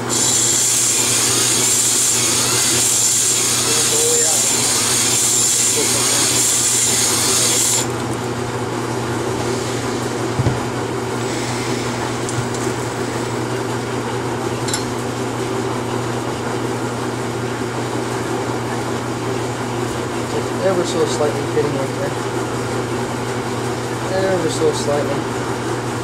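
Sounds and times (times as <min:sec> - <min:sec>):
cordless drill spinning hone: 0:00.0 - 0:08.0
knock: 0:10.4 - 0:10.6.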